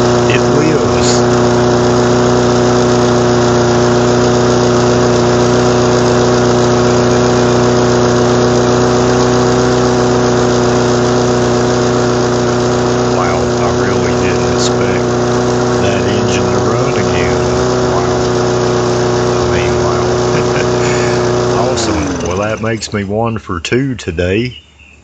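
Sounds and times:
lawn mower engine running: 0:00.0 - 0:24.9.

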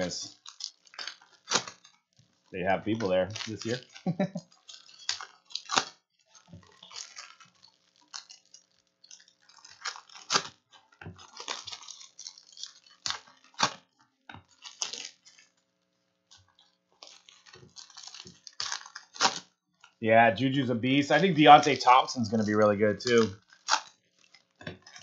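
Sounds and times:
foil wrappers crinkling and tearing: 0:00.0 - 0:25.0.

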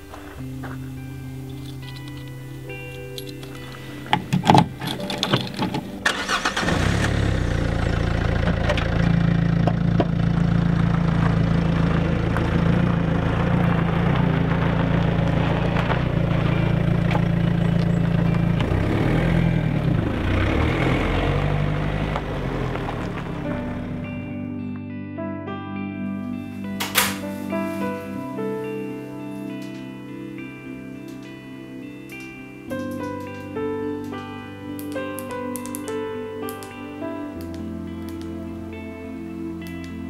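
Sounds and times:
car engine starting and idling: 0:01.4 - 0:24.4
key clicking in car lock: 0:04.2 - 0:05.9.

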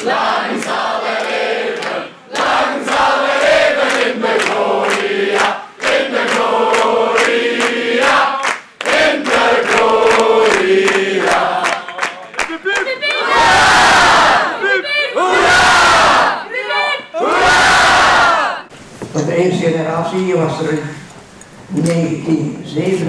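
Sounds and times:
crowd singing together: 0:00.0 - 0:18.7
hands clapping in time: 0:08.4 - 0:13.2
crowd shouting and cheering: 0:10.0 - 0:18.7.

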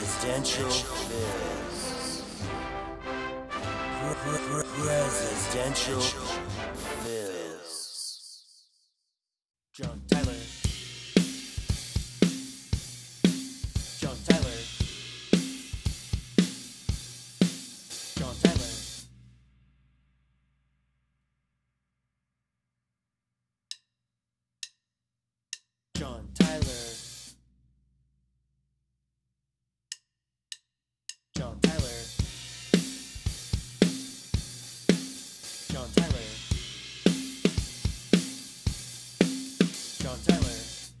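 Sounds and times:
drum kit playing: 0:00.0 - 0:07.2, 0:10.1 - 0:19.0, 0:31.6 - 0:40.9.

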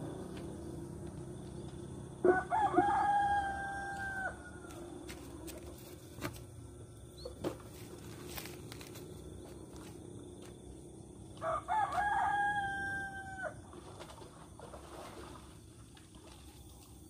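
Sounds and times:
rooster crowing: 0:02.2 - 0:04.9, 0:11.4 - 0:13.6.

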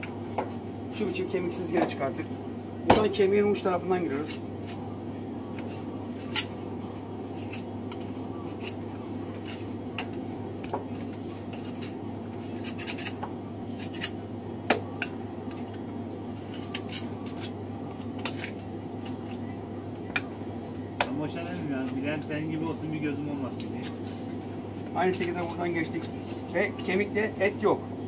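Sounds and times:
steady low hum: 0:00.0 - 0:28.0
knife scraping bone: 0:07.4 - 0:09.8, 0:11.0 - 0:14.2, 0:16.3 - 0:19.4.

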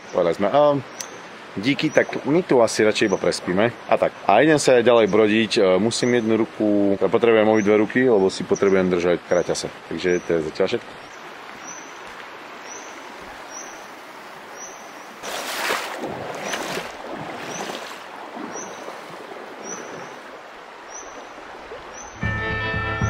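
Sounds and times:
river water rushing: 0:00.0 - 0:22.2
water splashing and sloshing: 0:10.6 - 0:22.2.

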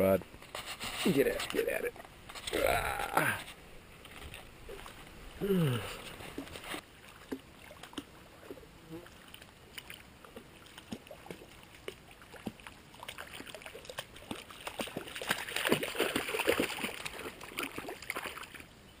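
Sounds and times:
creek water: 0:00.0 - 0:19.0
small knocks and splashes: 0:03.4 - 0:05.1, 0:06.0 - 0:18.7.

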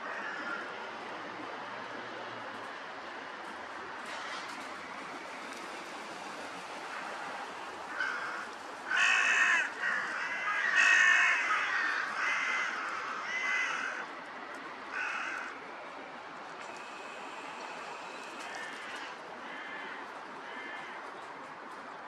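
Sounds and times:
crows cawing: 0:00.0 - 0:00.7, 0:07.8 - 0:14.1, 0:14.9 - 0:15.6, 0:18.4 - 0:21.2.

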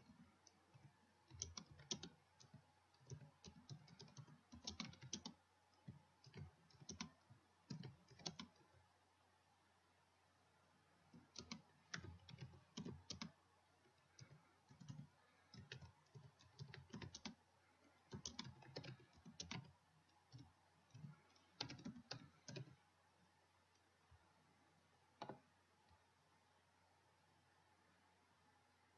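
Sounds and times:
faint computer keyboard typing: 0:00.0 - 0:08.8, 0:11.0 - 0:23.0, 0:25.1 - 0:26.1.

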